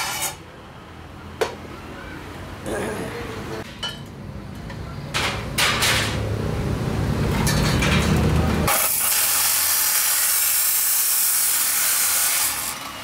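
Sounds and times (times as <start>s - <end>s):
saw disc grinding steel: 0.0s - 0.4s, 8.7s - 13.0s.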